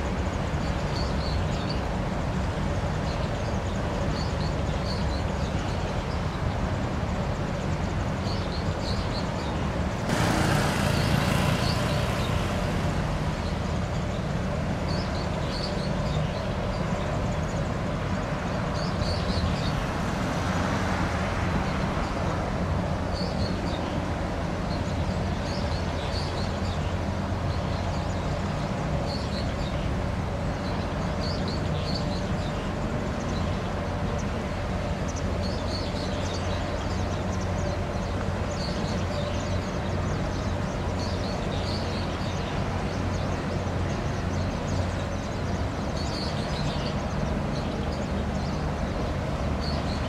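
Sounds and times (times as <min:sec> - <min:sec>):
ship engine drone: 0:01.8 - 0:18.7.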